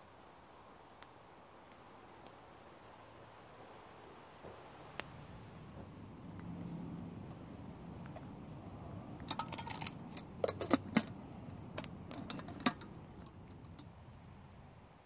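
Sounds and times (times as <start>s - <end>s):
camping pot metallic clinks: 9.2s - 13.9s.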